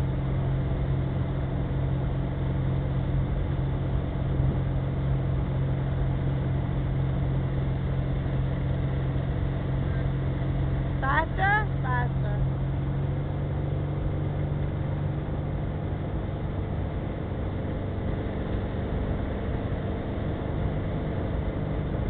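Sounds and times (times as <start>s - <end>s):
boat engine humming: 0.0s - 22.0s.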